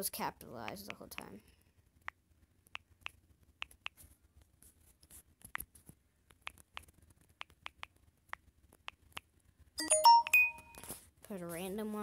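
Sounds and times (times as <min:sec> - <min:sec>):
smartphone keyboard typing clicks: 0:06.3 - 0:09.3.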